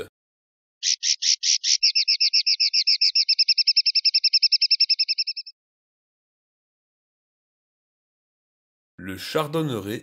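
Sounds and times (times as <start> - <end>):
bird trilling: 0.8 - 5.5.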